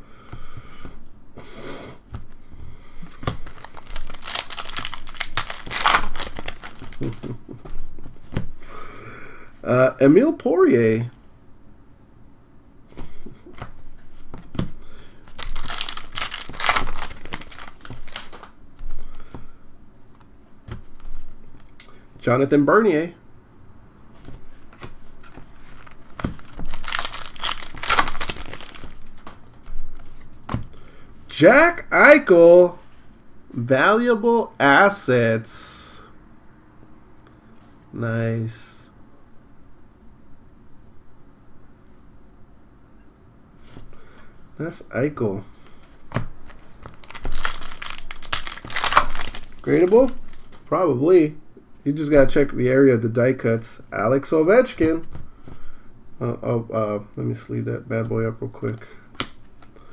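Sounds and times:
foil wrapper crinkling: 3.3s - 7.4s, 15.2s - 18.6s, 25.6s - 30.2s, 46.4s - 50.7s.

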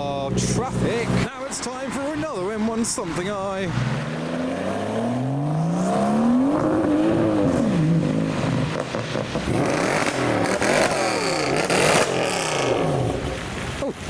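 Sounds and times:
car engine revving: 3.0s - 13.6s
car accelerating away: 3.7s - 13.5s.

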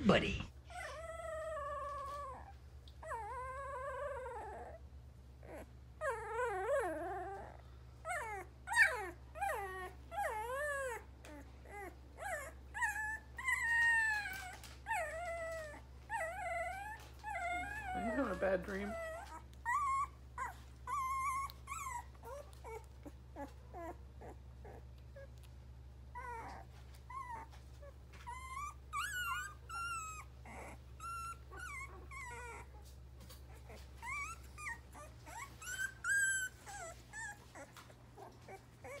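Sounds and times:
puppies whimpering and squeaking: 0.7s - 39.0s.

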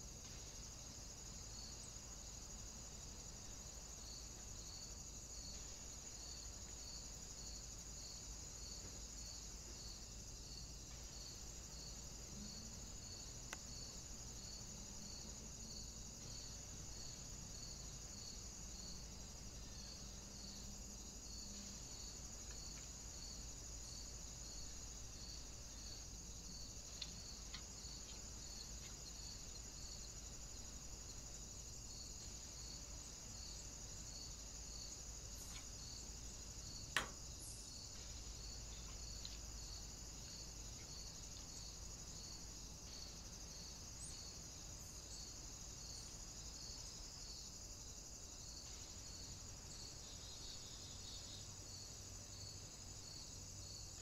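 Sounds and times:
crickets chirping: 0.0s - 54.0s
faint ticks: 13.4s - 13.7s, 26.7s - 29.2s, 37.9s - 41.6s.

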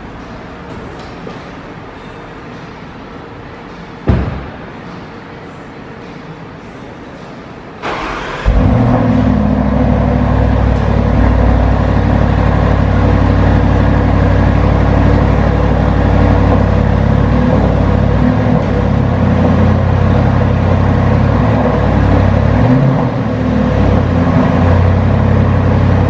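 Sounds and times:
car engine cranking: 7.8s - 22.8s
car engine idling loudly: 7.9s - 26.0s.

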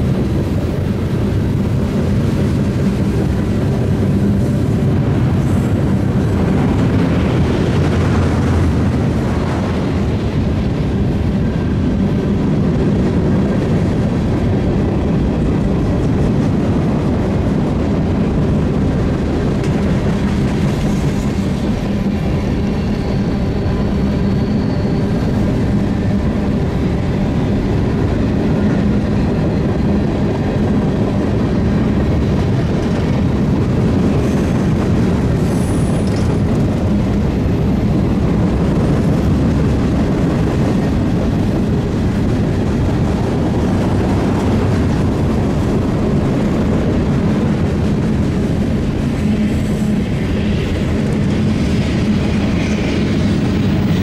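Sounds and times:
freight train rumbling past: 0.0s - 54.0s
high wheel squeals: 22.6s - 25.8s.

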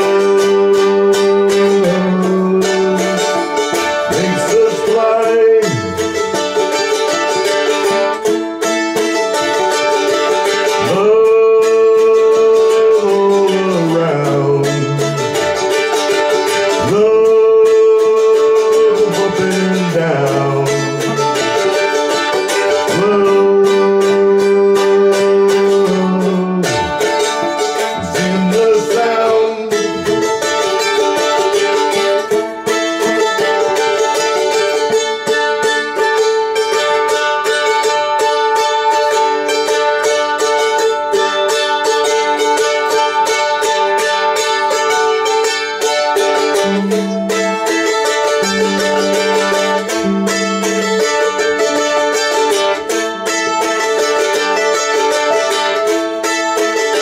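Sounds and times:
fiddle sliding notes: 0.0s - 57.0s
guitar playing: 0.0s - 57.0s
bass line: 13.0s - 16.0s, 22.9s - 30.6s.

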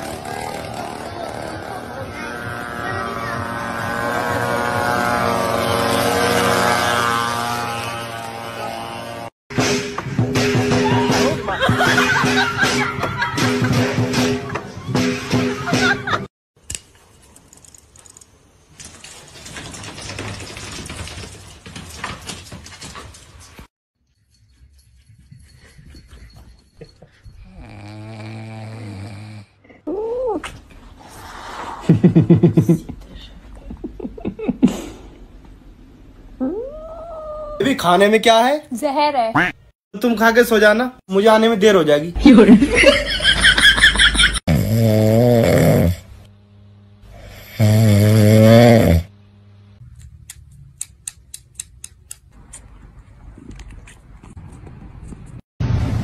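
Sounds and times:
dog snoring: 27.4s - 29.5s, 44.5s - 46.1s, 47.1s - 49.1s.

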